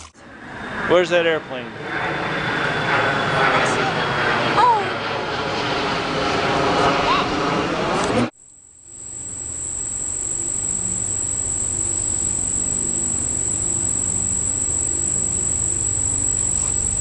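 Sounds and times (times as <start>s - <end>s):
insects buzzing high-pitched: 8.4s - 17.0s
faint low hum: 8.8s - 17.0s.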